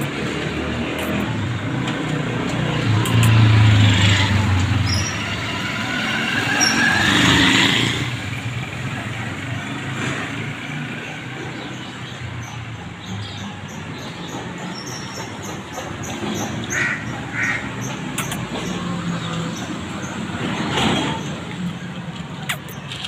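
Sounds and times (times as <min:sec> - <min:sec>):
vehicle engine passing by: 0:00.0 - 0:11.8.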